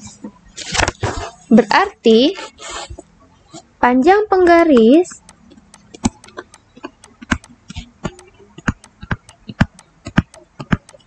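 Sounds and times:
pen stylus tapping on tablet: 4.4 - 11.0.

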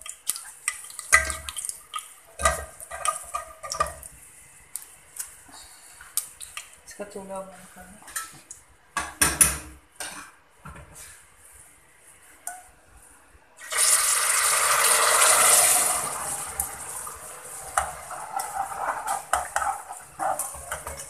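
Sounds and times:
oil bubbling and crackling: 0.0 - 6.9, 13.6 - 21.0.

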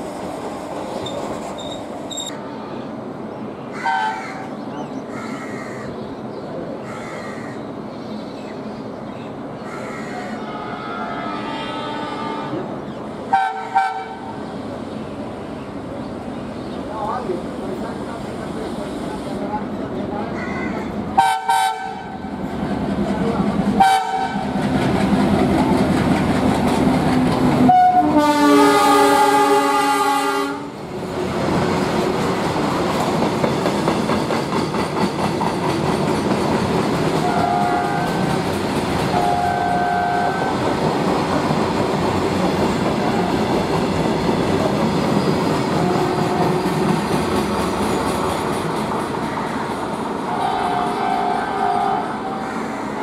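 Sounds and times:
diesel locomotive engine: 0.0 - 53.0
locomotive horn: 10.4 - 12.7, 13.3 - 14.3, 21.2 - 22.1, 23.8 - 24.5, 27.7 - 30.8, 37.2 - 38.3, 39.1 - 40.6, 45.8 - 46.6, 50.3 - 52.5.

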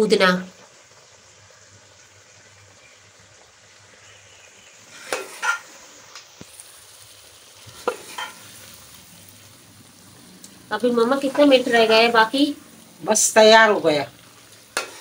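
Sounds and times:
faint sizzle of simmering food: 0.0 - 15.0
metal spoon scraping a pot: 5.0 - 5.7, 7.8 - 8.4, 14.7 - 15.0.

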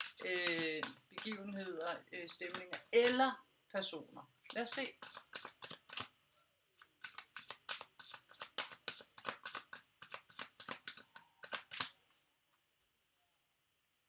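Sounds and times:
cards being shuffled: 0.0 - 3.3, 4.4 - 6.1, 6.8 - 12.1.

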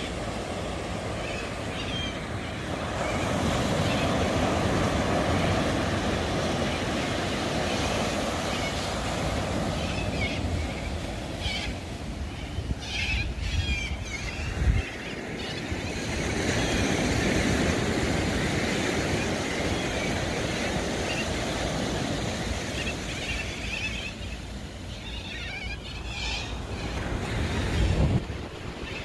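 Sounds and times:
small waves washing on beach: 0.0 - 12.8
wind buffeting microphone: 27.4 - 29.0.

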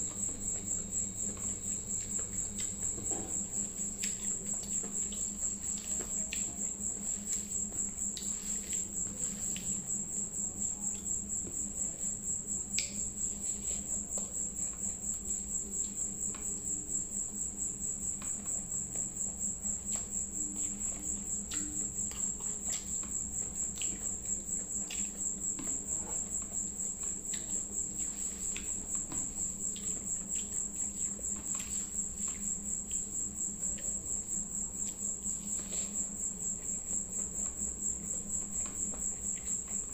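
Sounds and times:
cricket chirping: 0.0 - 39.9
low steady hum: 0.0 - 39.9.

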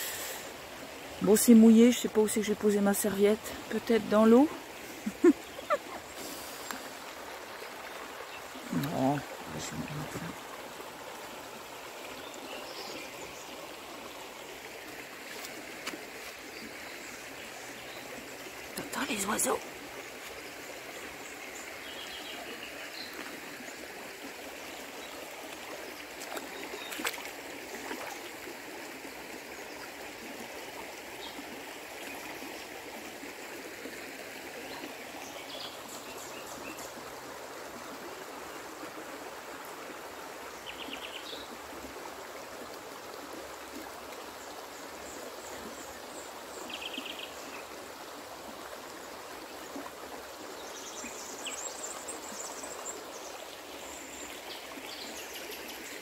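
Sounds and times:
river running over stones: 0.0 - 56.0
birds chirping: 3.8 - 7.0.

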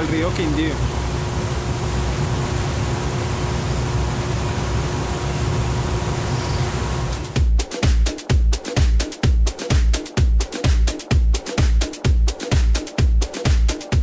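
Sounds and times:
water rushing down channel: 0.0 - 7.4
dance music with strong beat: 7.0 - 14.0.

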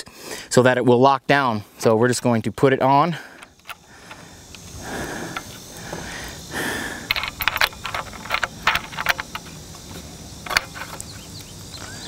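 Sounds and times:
lock nut clicking on bolt: 3.4 - 5.6, 7.1 - 11.1.

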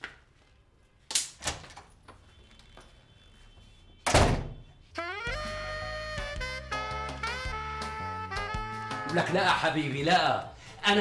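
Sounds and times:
door slamming: 4.0 - 4.6.

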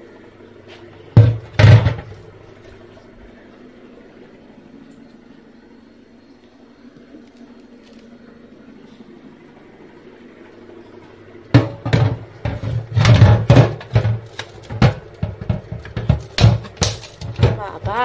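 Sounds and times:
plastic boxes knocking in metal sink: 1.2 - 2.2, 11.5 - 18.0.

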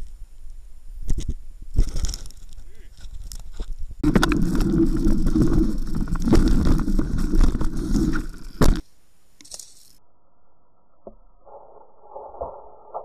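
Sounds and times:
bike tyres rumbling on mud: 4.0 - 8.8.

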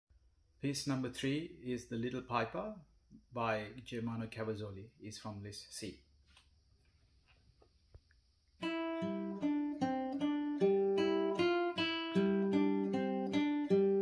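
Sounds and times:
plucked guitar melody: 8.6 - 14.0.

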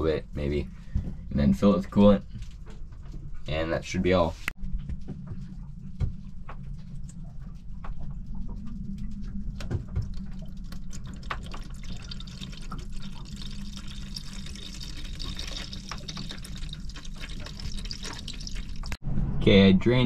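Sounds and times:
low hum: 0.0 - 20.0
liquid trickling into a bowl: 10.1 - 19.0.

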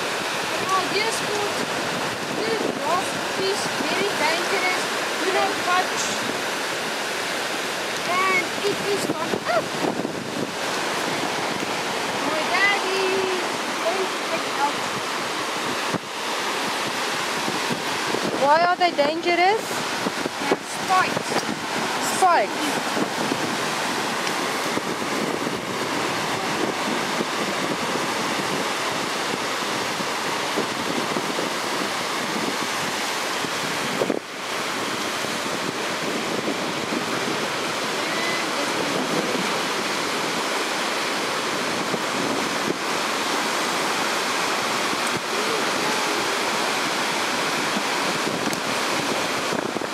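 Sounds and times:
ocean surf on rocks: 0.0 - 49.9
wind buffeting microphone: 0.0 - 49.9.

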